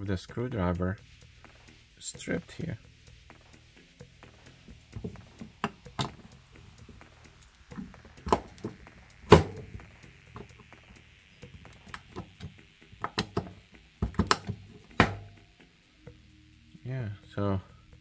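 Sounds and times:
tools and wood knocking: 5.0s - 6.3s, 7.8s - 9.7s, 12.1s - 15.3s.

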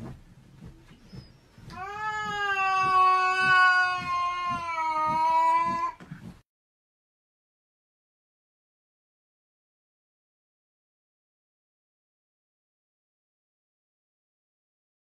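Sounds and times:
cat yowling: 1.8s - 6.0s.

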